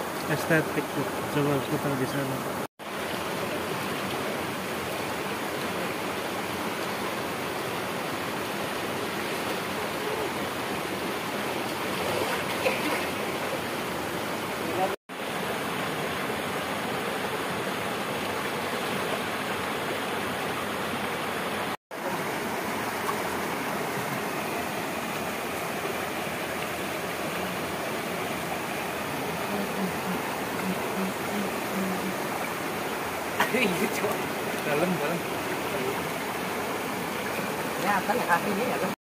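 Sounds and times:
river rushing over stones: 0:00.0 - 0:39.0.

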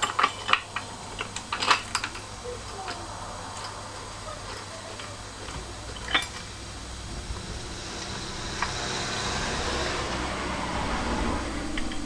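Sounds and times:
metal bolts clinking: 0:00.0 - 0:09.2, 0:11.7 - 0:12.0.

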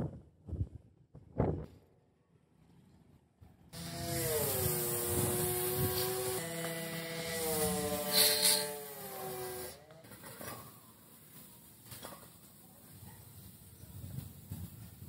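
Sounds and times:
water jet hissing on metal: 0:03.8 - 0:09.8
pressure washer humming: 0:03.8 - 0:10.2.

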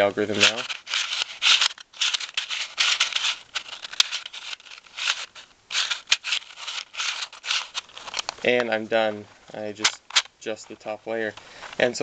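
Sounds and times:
plastic puzzle scraping and clattering: 0:00.0 - 0:08.7, 0:09.8 - 0:10.3
sharp plastic clicks: 0:09.8 - 0:10.4.

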